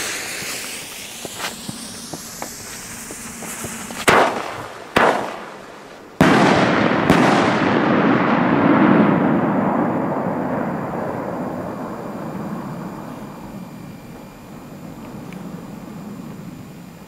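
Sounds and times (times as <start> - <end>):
long rolling echo: 0.0 - 17.0.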